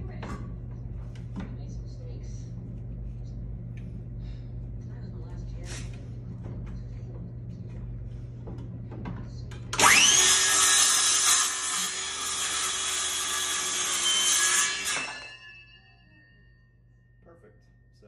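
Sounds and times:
circular saw cutting wood: 0:09.8 - 0:15.7.

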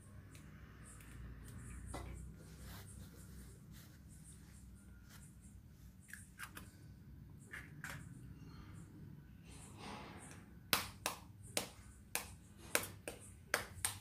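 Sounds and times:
knife tapping eggshells: 0:10.7 - 0:14.0.

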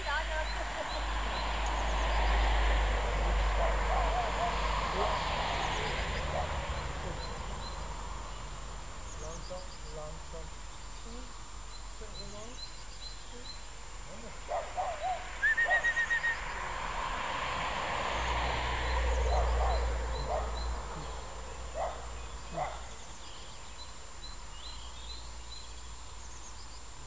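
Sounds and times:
birds chirping: 0:00.0 - 0:27.0
short loud bird calls: 0:03.1 - 0:17.0.

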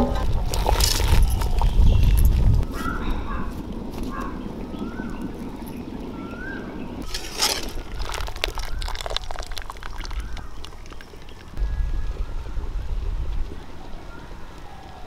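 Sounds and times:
wood fire rumbling: 0:06.8 - 0:15.0
water splashing and dripping: 0:07.0 - 0:11.6.

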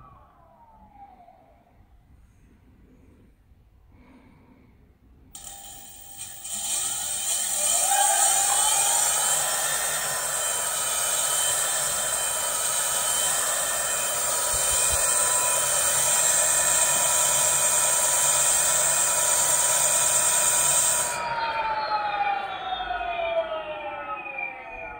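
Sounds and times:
high hiss: 0:05.4 - 0:21.2
electric motor whine: 0:05.4 - 0:22.5.

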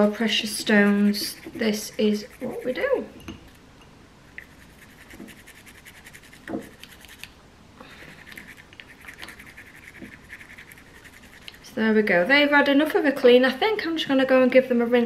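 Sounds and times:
toothbrush scrubbing: 0:00.0 - 0:03.6, 0:04.4 - 0:07.3, 0:07.9 - 0:11.8.

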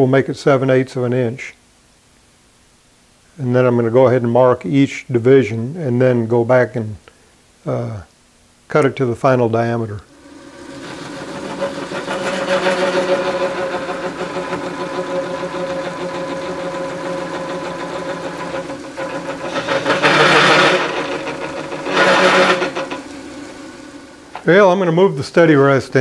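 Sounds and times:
metal lathe running: 0:10.1 - 0:26.0
cutting tool cutting steel: 0:10.2 - 0:24.4.

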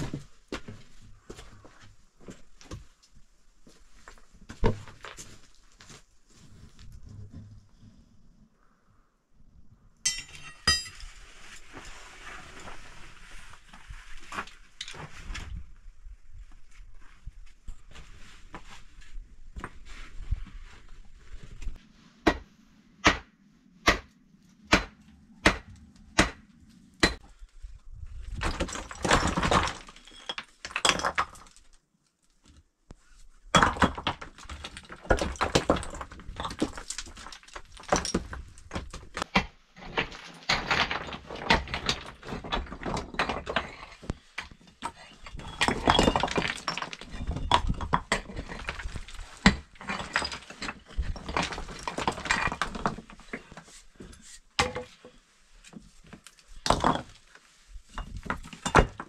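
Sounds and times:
hammer striking rock: 0:22.2 - 0:22.4, 0:23.0 - 0:24.1, 0:24.7 - 0:27.2
stones clattering and rattling: 0:28.0 - 0:31.8, 0:33.4 - 0:55.0, 0:55.7 - 0:59.0.

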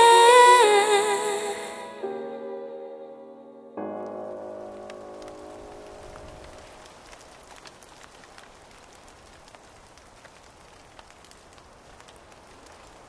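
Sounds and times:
rain hissing: 0:04.0 - 0:13.0
raindrops ticking: 0:04.0 - 0:13.0.

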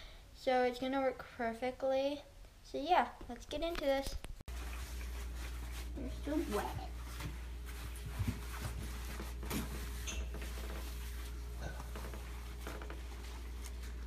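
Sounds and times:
fabric rustling: 0:04.0 - 0:14.0.

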